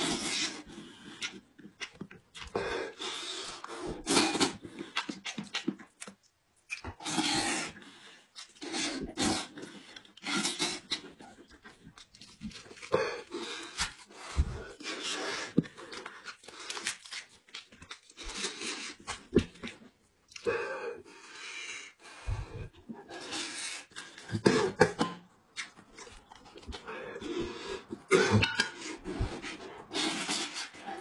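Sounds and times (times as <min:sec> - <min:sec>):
man chewing and smacking: 0:00.2 - 0:02.6, 0:04.3 - 0:07.0, 0:08.3 - 0:20.5, 0:23.8 - 0:31.0
heavy panting breaths: 0:20.5 - 0:24.8, 0:26.6 - 0:28.1, 0:28.7 - 0:31.0.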